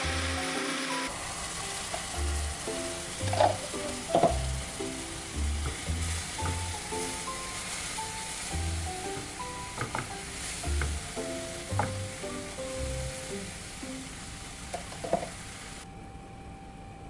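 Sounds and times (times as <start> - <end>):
blender running: 0.0 - 4.0
light background music: 0.0 - 14.3
batter sizzling in frying pan: 0.0 - 15.8.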